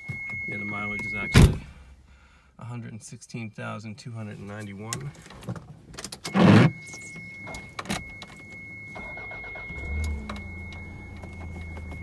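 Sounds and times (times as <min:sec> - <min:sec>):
car engine starting and idling: 0:06.1 - 0:12.0
thin high whine: 0:06.3 - 0:07.8.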